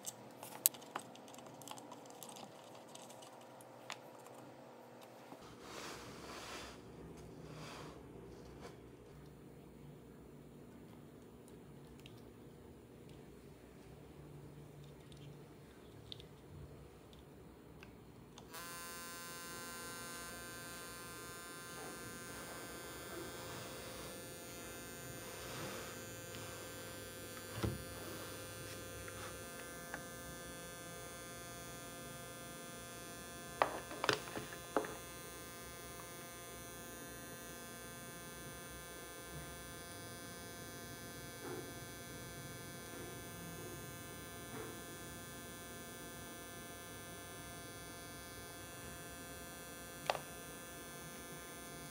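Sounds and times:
transformer humming and buzzing: 18.6 - 31.9.

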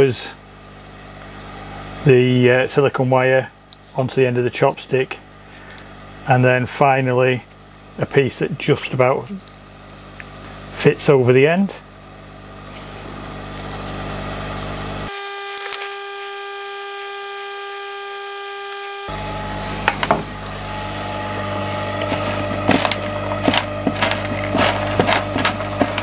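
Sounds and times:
heat gun running: 15.0 - 26.0.

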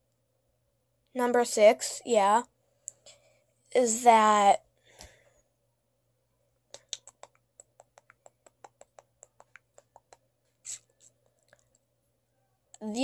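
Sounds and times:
rapid light sharp clicks: 6.7 - 10.3.

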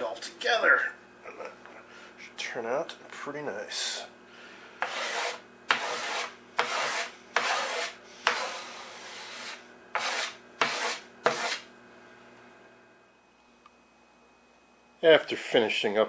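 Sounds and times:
hand rubbing wooden surface: 4.8 - 11.6.

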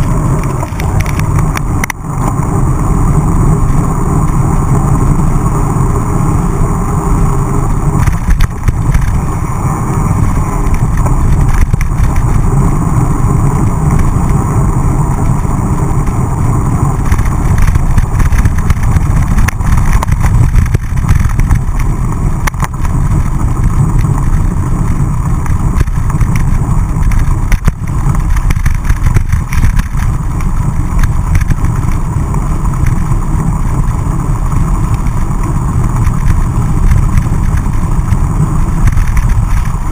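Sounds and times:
bike rattles and clicks: 0.0 - 39.9
tyre noise on gravel: 0.0 - 39.9
wind buffeting microphone: 0.0 - 39.9.

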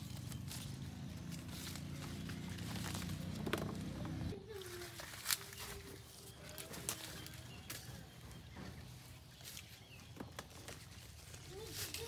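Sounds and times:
leaves rustling: 0.0 - 12.0.

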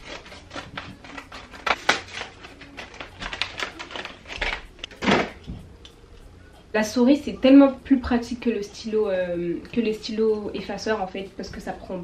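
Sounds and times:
package being torn open: 0.0 - 5.4.

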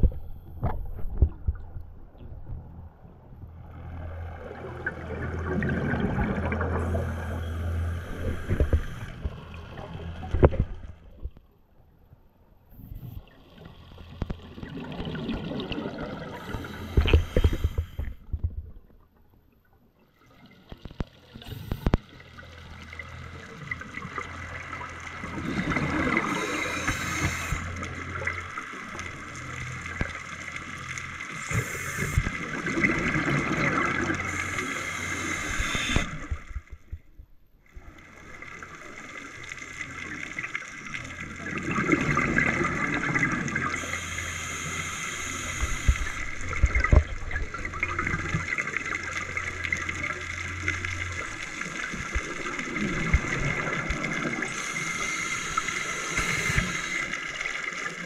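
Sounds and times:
scuba bubbles gurgling underwater: 3.7 - 10.9, 14.1 - 18.5, 23.0 - 37.0, 37.8 - 58.0.

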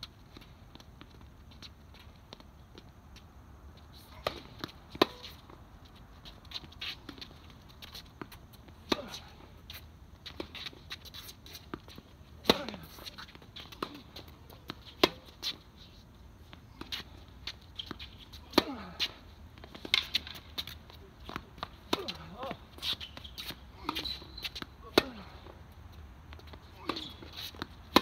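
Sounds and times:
faint clicks and scuffs: 0.0 - 28.0
tennis ball struck by rackets: 4.2 - 5.4, 12.4 - 13.1, 15.0 - 15.4, 18.5 - 19.1, 21.3 - 25.4, 26.8 - 28.0.

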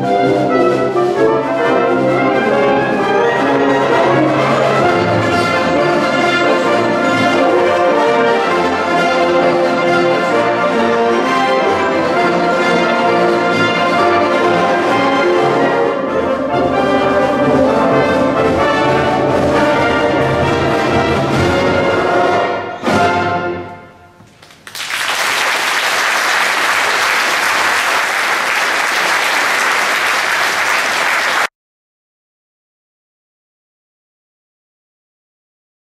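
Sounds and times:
brass-heavy wind band playing: 0.0 - 24.2
audience applauding: 24.3 - 31.5.

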